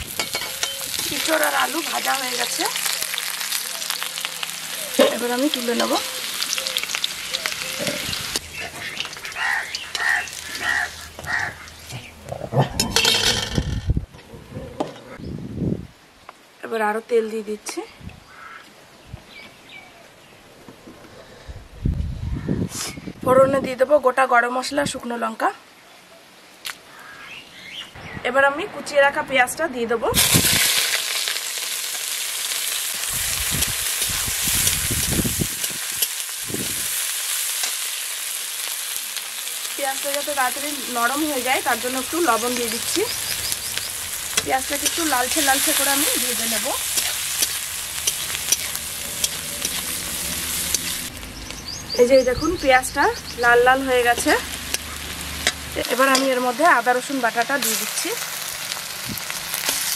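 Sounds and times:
onion sizzling in hot oil: 0.0s - 12.3s, 30.1s - 59.9s
metal spatula scraping wok: 7.8s - 13.9s, 41.4s - 51.2s.

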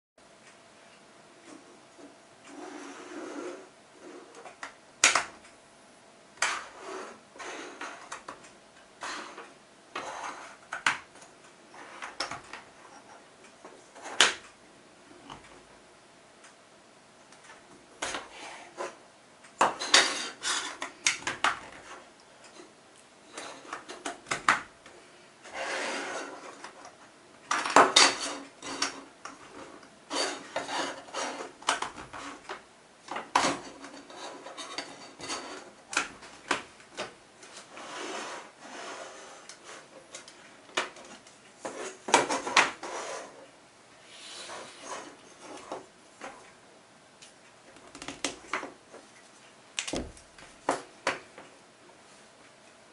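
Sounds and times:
plastic track scraping on table: 9.0s - 10.9s, 25.4s - 26.8s, 27.8s - 32.5s, 37.5s - 39.9s.

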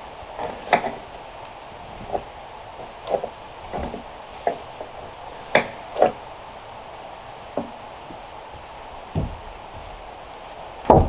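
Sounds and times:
wooden knocks and clunks: 0.4s - 1.1s, 1.9s - 6.2s, 7.5s - 8.2s, 9.0s - 10.0s, 10.8s - 11.0s.

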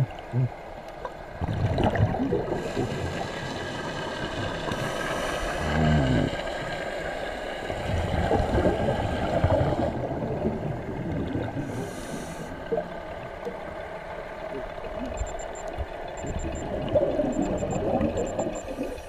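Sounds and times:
gurgle of exhaled bubbles: 1.3s - 6.8s, 7.7s - 13.6s, 16.2s - 19.0s
regulator hiss on inhale: 11.6s - 12.6s.

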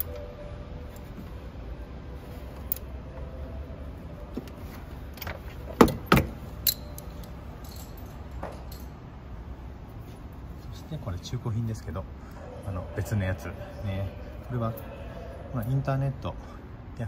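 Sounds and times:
metallic clanks: 5.2s - 9.0s.

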